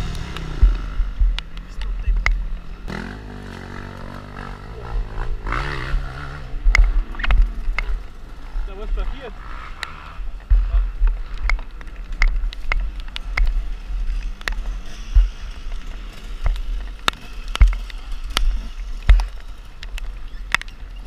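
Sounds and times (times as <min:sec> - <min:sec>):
dirt bike engine rumble: 0:00.0 - 0:21.0
knocks and clatters: 0:10.4 - 0:20.8.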